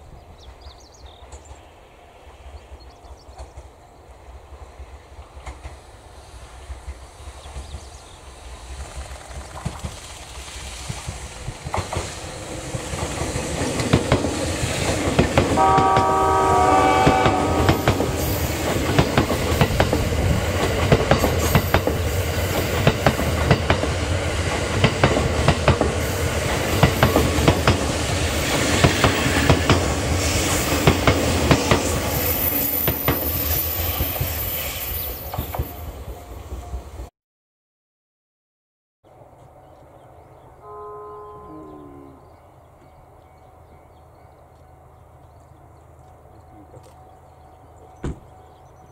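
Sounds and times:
train wheels clicking over rail joints: 4.6 - 16.2, 17.3 - 34.5
train horn chord: 15.5 - 18.8, 39.6 - 42.6.

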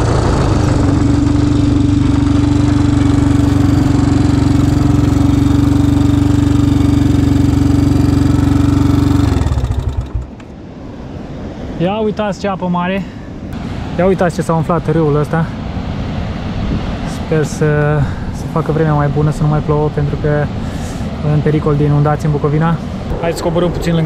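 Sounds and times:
atv engine running: 0.0 - 10.5.

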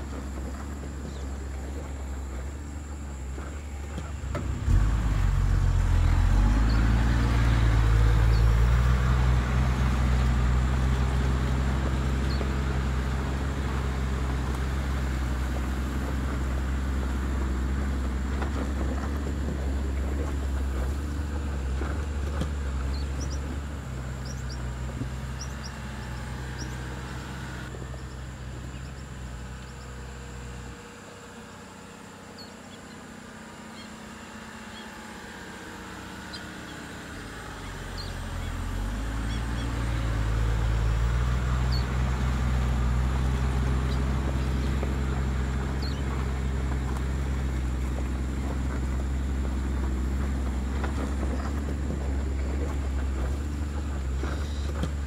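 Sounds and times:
steady low rumble: 0.0 - 30.3
faint bird chirps: 32.2 - 35.5, 36.2 - 40.2.

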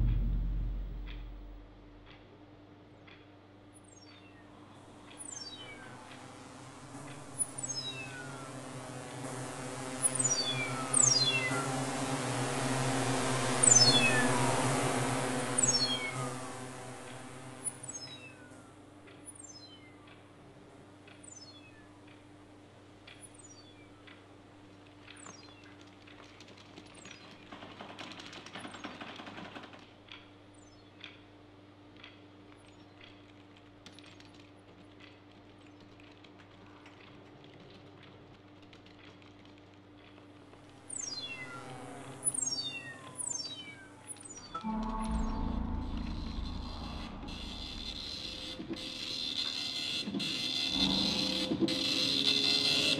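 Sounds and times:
noisy swell: 0.0 - 2.0, 44.4 - 49.7
steady low hum: 0.0 - 3.7, 43.9 - 52.9.

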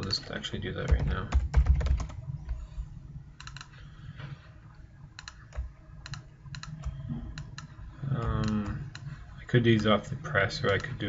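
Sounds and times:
computer keyboard keystrokes: 5.2 - 9.1.

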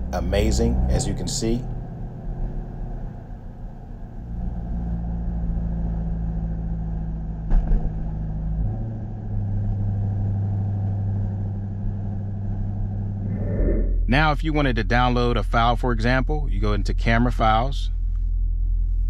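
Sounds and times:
car engine and road noise: 0.0 - 14.2.

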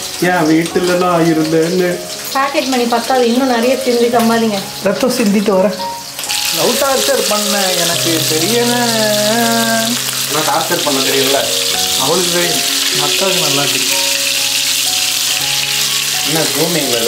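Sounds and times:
fish sizzling in hot oil: 0.0 - 17.0
song with sung melody: 6.6 - 15.2.

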